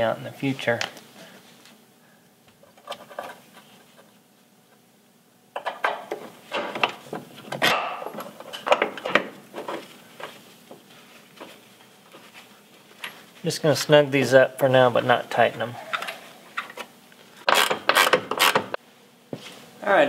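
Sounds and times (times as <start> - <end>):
metal bolts clinking and knocking: 5.6 - 7.0.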